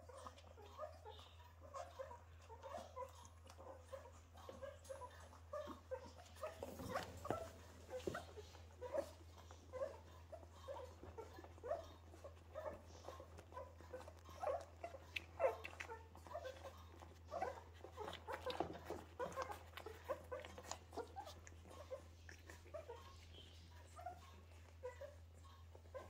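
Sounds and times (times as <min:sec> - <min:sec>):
puppies squeaking and whimpering: 0:00.0 - 0:26.0
small clicking sounds: 0:10.7 - 0:23.2.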